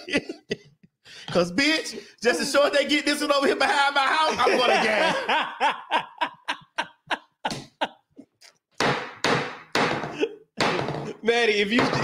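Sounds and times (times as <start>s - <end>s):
person laughing hard: 0.0s - 0.8s, 3.6s - 8.4s, 10.0s - 11.2s.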